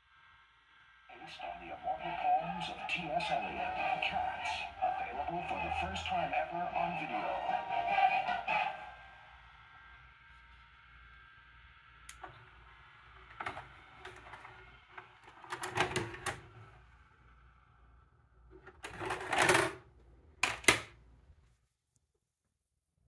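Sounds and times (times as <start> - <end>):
faint steady whine: 0.0 - 18.7
dvd player mechanism clicks and clatter: 13.3 - 14.6, 15.2 - 16.4, 18.7 - 19.8, 20.4 - 20.9.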